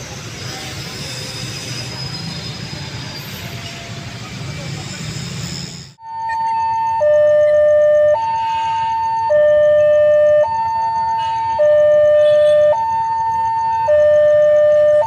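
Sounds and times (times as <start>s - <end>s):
two-tone electronic warning alarm: 6.0s - 15.0s.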